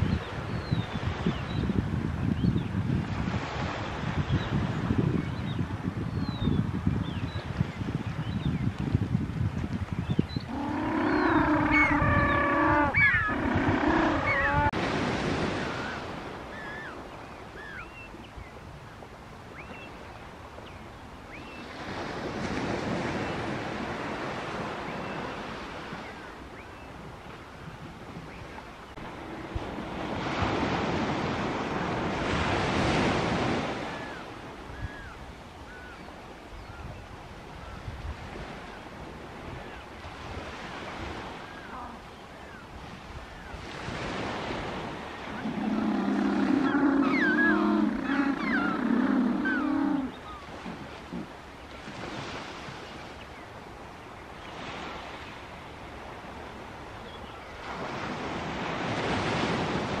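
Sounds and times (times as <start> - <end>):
surf washing in and out: 0.0 - 60.0
penguin braying call: 10.6 - 14.7, 45.6 - 50.1.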